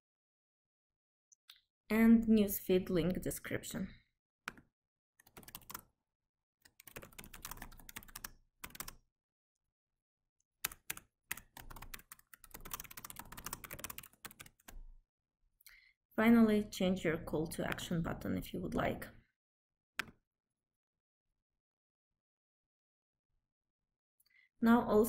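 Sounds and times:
typing on a computer keyboard: 0:05.2 - 0:05.9, 0:06.6 - 0:09.0, 0:10.6 - 0:14.8.

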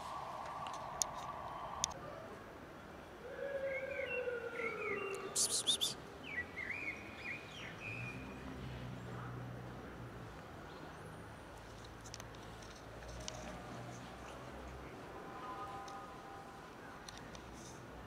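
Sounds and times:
outdoor background noise: 0:00.0 - 0:18.0
small birds chirping: 0:04.0 - 0:08.0.

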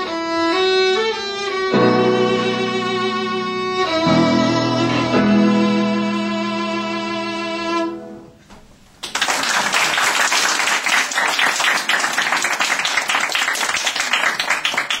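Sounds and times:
violin bowed note: 0:00.0 - 0:08.2
applause: 0:09.0 - 0:15.0.

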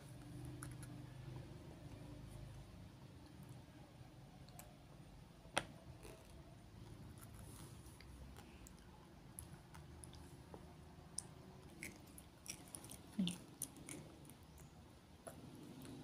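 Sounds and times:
child chewing candy: 0:05.8 - 0:16.0.

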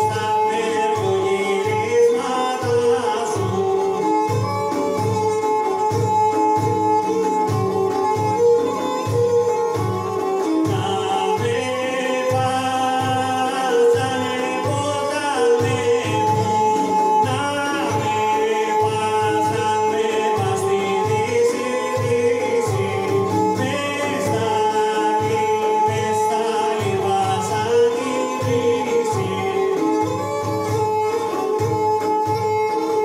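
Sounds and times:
man singing: 0:00.0 - 0:05.4, 0:10.4 - 0:31.4
frame drum beat: 0:00.0 - 0:33.0
plucked lute: 0:00.0 - 0:33.0
zither: 0:00.0 - 0:33.0.

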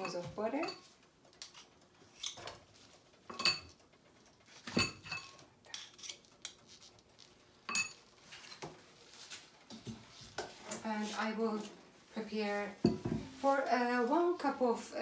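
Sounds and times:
metal utensil clinking against pot: 0:00.0 - 0:00.9, 0:03.3 - 0:03.8, 0:04.7 - 0:06.6, 0:07.7 - 0:08.0.

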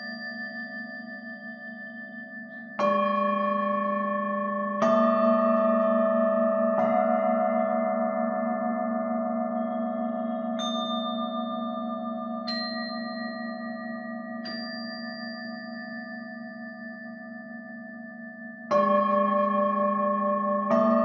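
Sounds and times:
metal chime tubes struck: 0:09.5 - 0:19.8.

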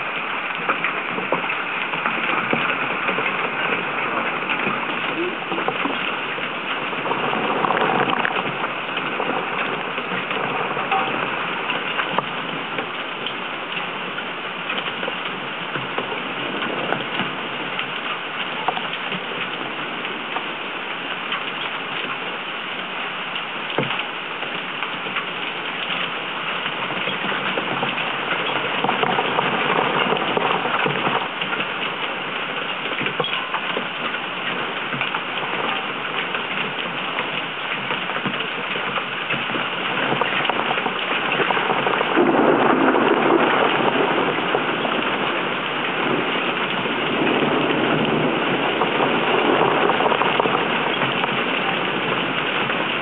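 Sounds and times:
heavy rain rushing: 0:00.0 - 0:53.0
raindrops ticking on camera housing: 0:00.0 - 0:53.0.

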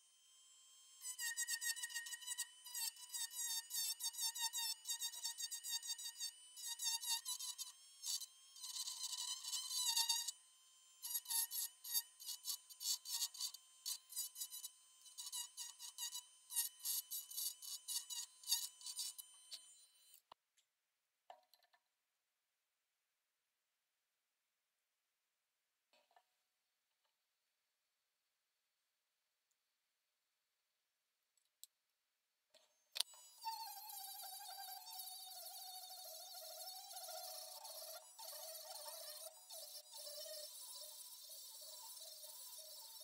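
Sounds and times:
rotary tool whining: 0:00.0 - 0:20.3, 0:32.6 - 0:43.0.

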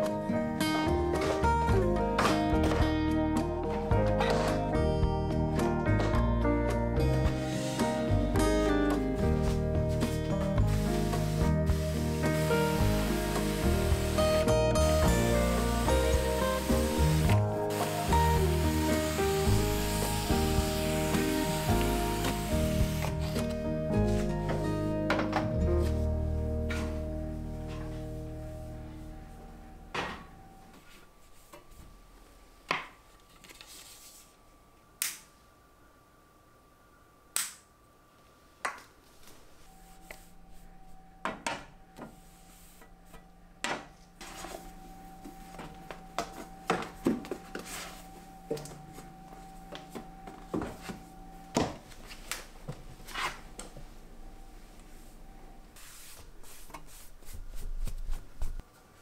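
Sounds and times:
soft handling noise: 0:33.0 - 0:34.5.

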